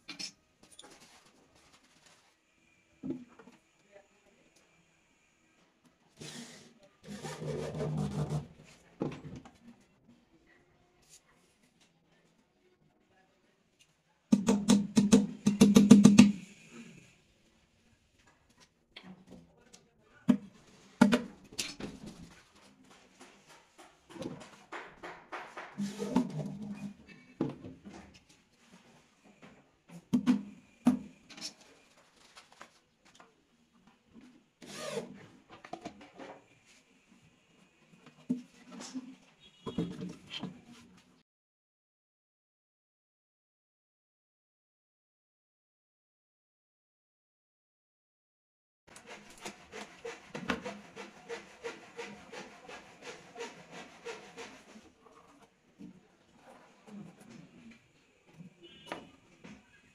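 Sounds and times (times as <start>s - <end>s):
rhythmic scraping on wood: 49.0s - 54.9s.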